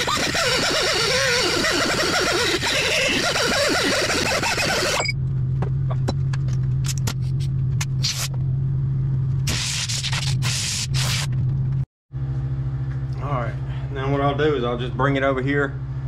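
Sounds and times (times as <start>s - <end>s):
steady low hum: 4.3s - 16.0s
compressed air hissing: 9.5s - 11.3s.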